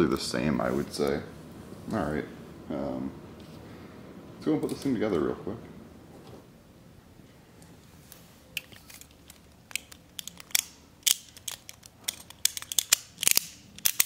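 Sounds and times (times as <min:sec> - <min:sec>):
toy top parts clicking: 0:08.6 - 0:14.0.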